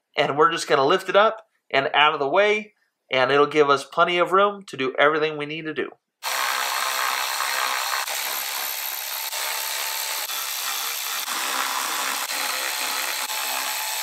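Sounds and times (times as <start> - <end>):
electric ratchet motor whirring: 6.2 - 14.0.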